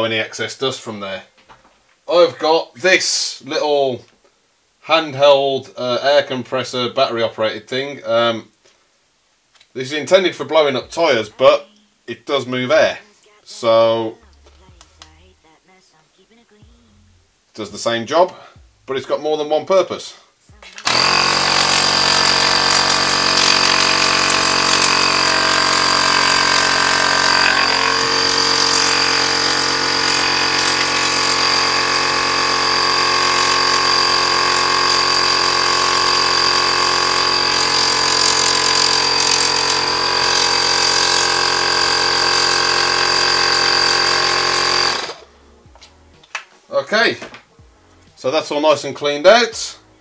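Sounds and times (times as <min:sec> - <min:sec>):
tyre inflator motor whining: 0:20.8 - 0:45.4.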